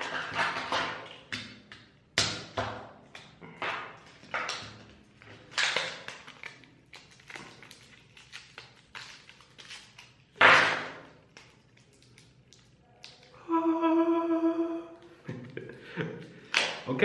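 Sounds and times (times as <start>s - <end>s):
plastic blister pack crackling: 5.5s - 10.4s.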